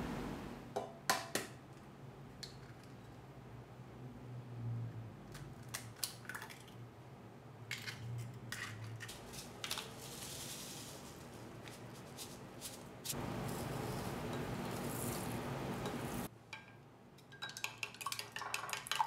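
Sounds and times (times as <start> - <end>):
eggs cracking against a glass jug: 17.2 - 19.0.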